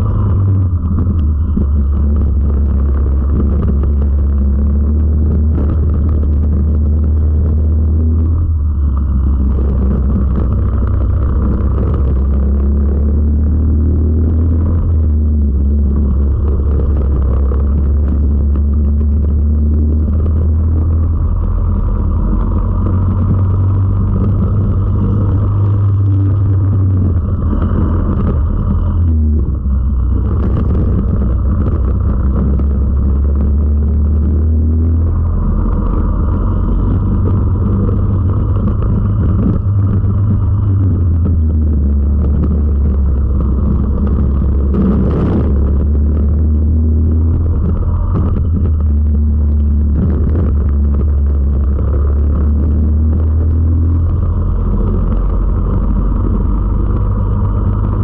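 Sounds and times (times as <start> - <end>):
kart engine racing: 0.0 - 58.0.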